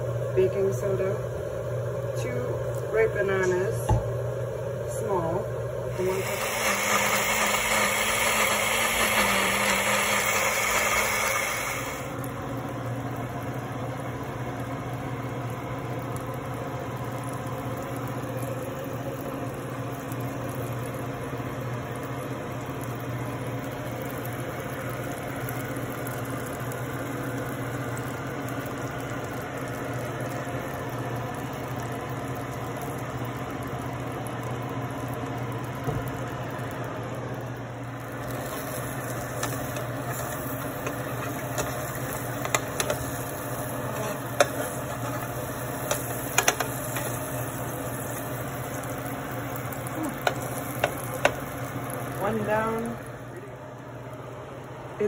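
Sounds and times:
low mechanical hum: 0.0 - 55.0
countertop blender whirring: 4.8 - 33.2, 38.0 - 53.7.

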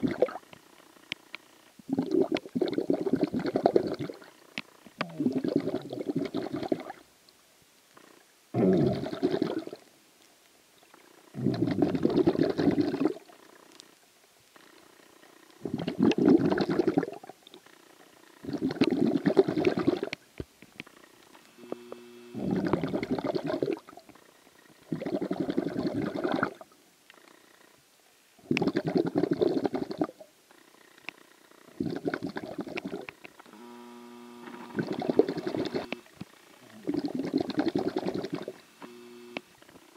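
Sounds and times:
underwater breathing and bubbles: 0.0 - 0.5, 1.8 - 7.0, 8.0 - 9.9, 11.4 - 13.8, 15.6 - 20.2, 22.4 - 27.6, 28.4 - 33.3, 34.7 - 38.8.

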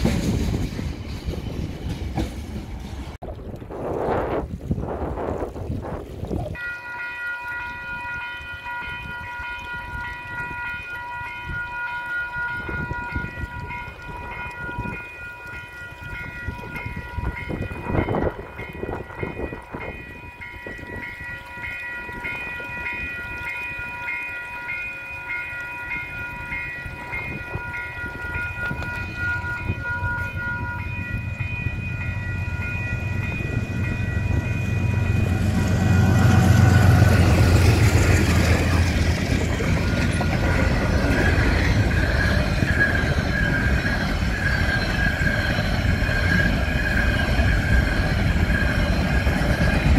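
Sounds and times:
diesel locomotive rumble: 0.0 - 3.7, 26.8 - 49.9.

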